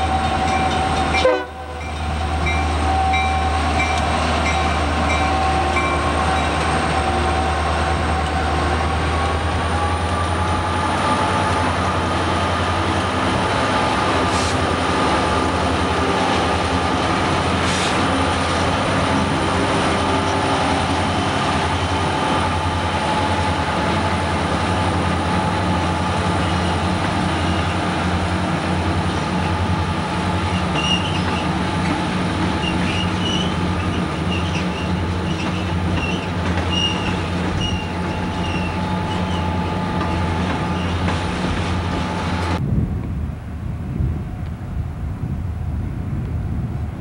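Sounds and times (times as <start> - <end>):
diesel locomotives droning: 0.0 - 47.0
train wheels squealing: 30.4 - 31.6, 32.6 - 41.2.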